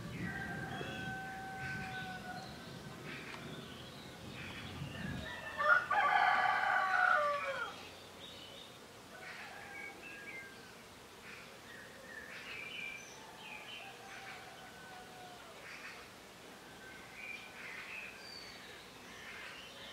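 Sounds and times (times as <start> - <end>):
rooster crowing: 0.0 - 2.7, 5.0 - 7.8, 13.2 - 15.6
small birds chirping: 0.0 - 5.8, 7.6 - 19.9.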